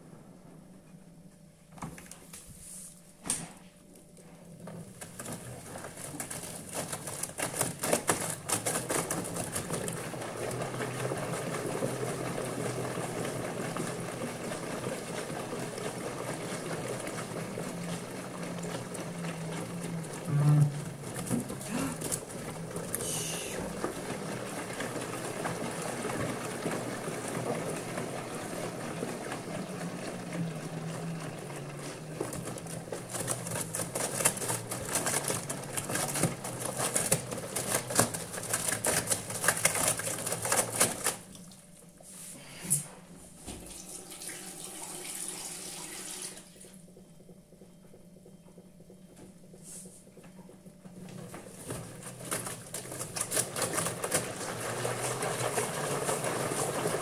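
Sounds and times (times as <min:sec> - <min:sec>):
washing machine motor hum: 0:00.0 - 0:57.0
water and cloth sloshing in drum: 0:04.3 - 0:46.8, 0:49.6 - 0:57.0.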